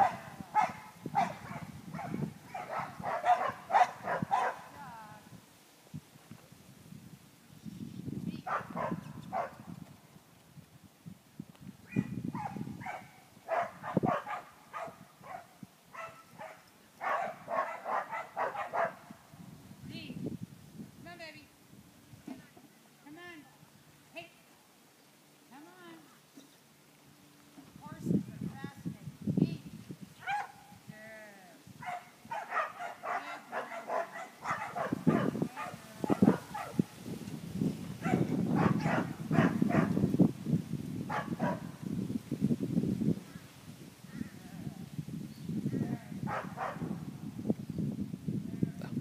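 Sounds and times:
dog barking and yipping: 0.0 - 4.7, 8.5 - 9.5, 11.9 - 19.1, 30.2 - 30.6, 31.8 - 36.9, 38.0 - 40.0, 41.1 - 41.7, 46.3 - 46.8
low rumble on microphone: 44.2 - 49.0.

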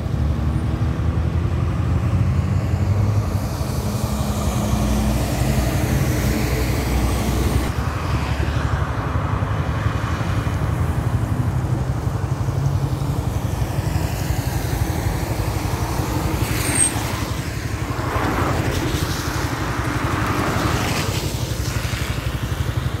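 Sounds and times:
passing traffic: 0.0 - 23.0
road noise on wet road: 0.0 - 23.0
wind: 0.0 - 23.0.

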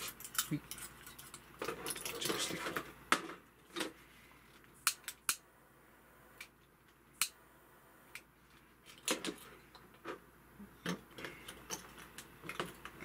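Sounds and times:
metal and glass parts clicking: 0.0 - 2.8, 10.8 - 13.0.

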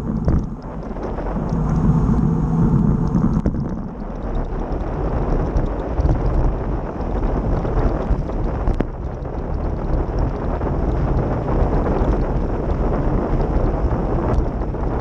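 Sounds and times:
tyres rolling on asphalt: 0.0 - 15.0
wind rushing over microphone: 0.0 - 15.0.

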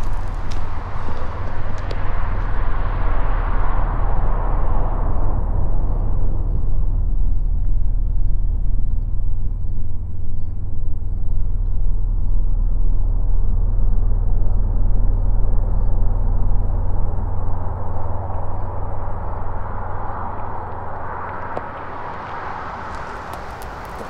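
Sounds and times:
vehicle engine low rumble: 0.0 - 24.0.

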